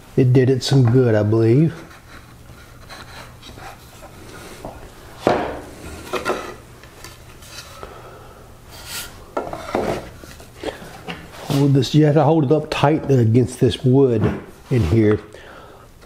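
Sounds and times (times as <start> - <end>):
faint steady hum: 0.0 - 16.0
tools knocking and scraping on bench: 9.4 - 10.1.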